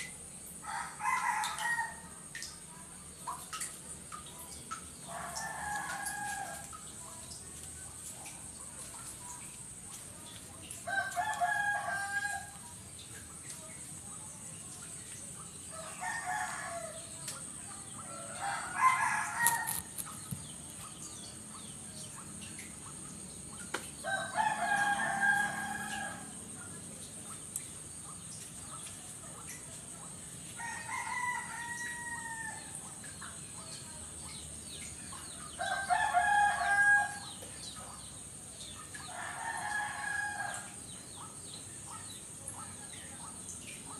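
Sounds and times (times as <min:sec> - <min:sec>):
roosters crowing: 0:10.9 - 0:12.5, 0:18.0 - 0:19.9, 0:24.0 - 0:26.4, 0:30.6 - 0:32.7, 0:35.6 - 0:37.2.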